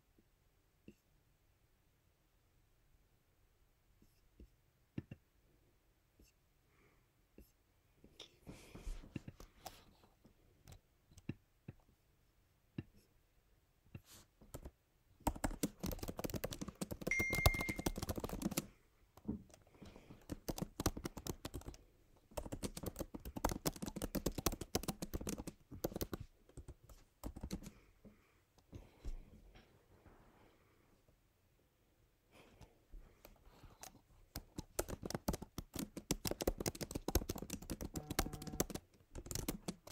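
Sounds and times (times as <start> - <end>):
keyboard typing: 14.4 - 18.7, 19.5 - 27.8, 33.2 - 39.9.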